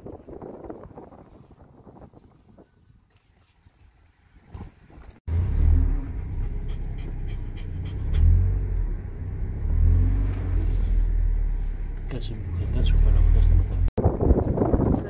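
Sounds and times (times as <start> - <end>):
wind buffeting microphone: 0.0 - 5.3, 12.8 - 15.0
car driving rumble: 5.1 - 15.0.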